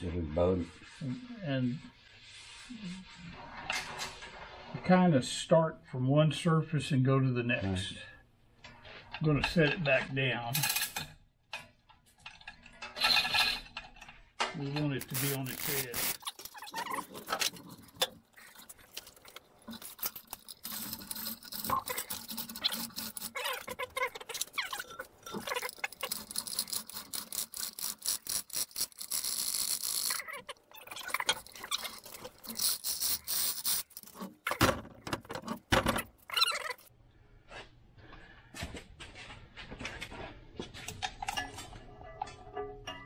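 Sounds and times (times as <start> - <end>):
hoist chain rattling clicks: 24.2 - 30.3, 31.2 - 34.2.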